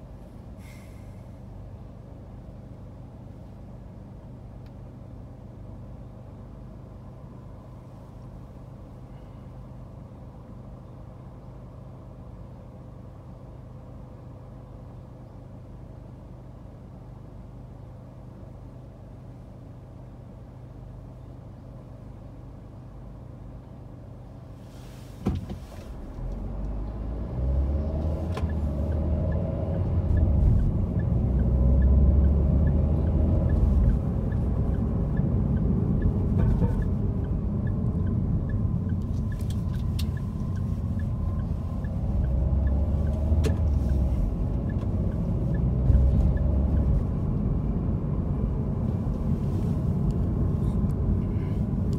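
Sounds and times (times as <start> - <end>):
engine and tyre rumble: 0.0 - 51.9
car engine humming: 24.7 - 51.9.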